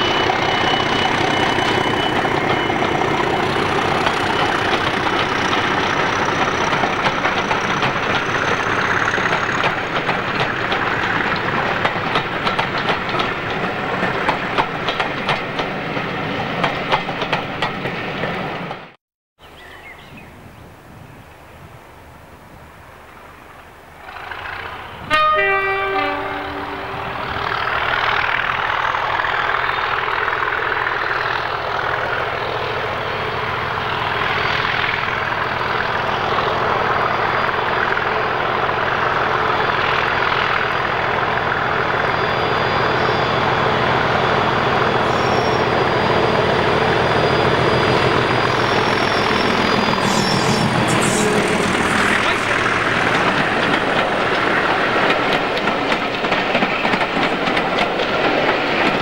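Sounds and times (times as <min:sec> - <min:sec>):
diesel locomotive engine running: 0:00.0 - 0:18.0, 0:23.7 - 0:59.0
train wheels clattering on track: 0:00.0 - 0:19.0, 0:24.0 - 0:59.0
two-tone train horn: 0:25.0 - 0:27.4.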